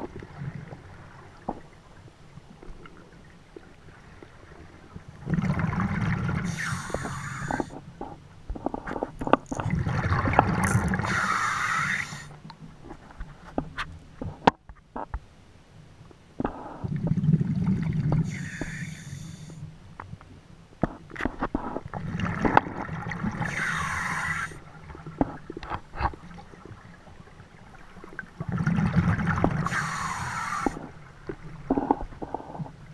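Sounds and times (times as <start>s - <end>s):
regulator hissing on inhale: 6.5s - 7.8s, 11.0s - 12.4s, 18.2s - 19.6s, 23.4s - 24.6s, 29.6s - 30.9s
bubbling exhale underwater: 9.5s - 12.3s.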